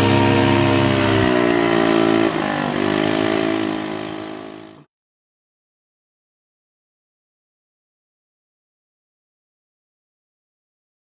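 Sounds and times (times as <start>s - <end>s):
motor scooter engine pulling away: 0.0s - 4.9s.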